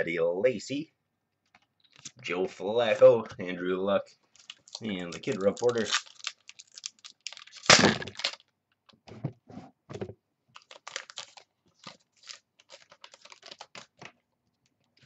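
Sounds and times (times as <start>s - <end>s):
foil wrapper crinkling: 4.3s - 8.4s, 10.5s - 14.1s
foil pack ripping: 4.4s - 8.4s, 10.6s - 14.0s.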